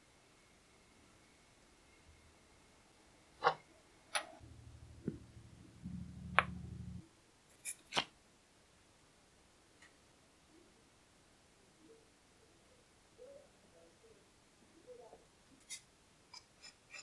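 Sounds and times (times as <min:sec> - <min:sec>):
faint low hum: 0:00.0 - 0:07.5.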